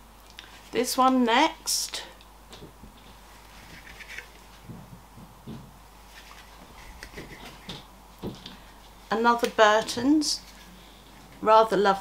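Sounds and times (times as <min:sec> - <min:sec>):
shirt fabric rustling: 0:02.9 - 0:08.6.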